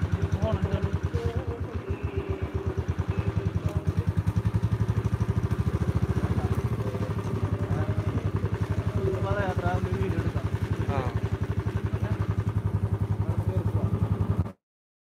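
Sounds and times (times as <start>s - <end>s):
motorcycle engine idling: 0.0s - 14.6s.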